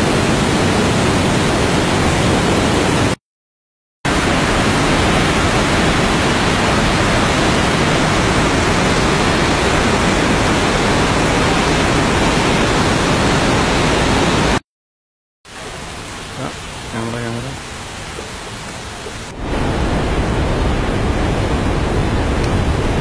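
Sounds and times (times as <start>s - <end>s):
rushing floodwater: 4.1s - 14.6s, 15.5s - 23.0s.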